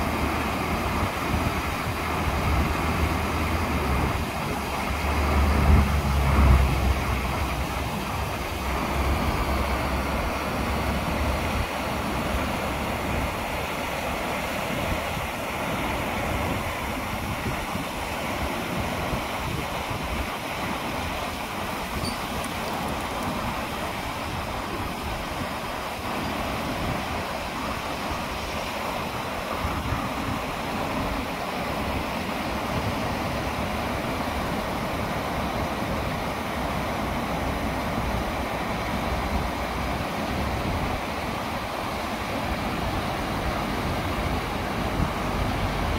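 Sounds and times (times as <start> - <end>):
wind buffeting microphone: 0.0 - 13.8
waterfall pouring over rocks: 0.0 - 45.9.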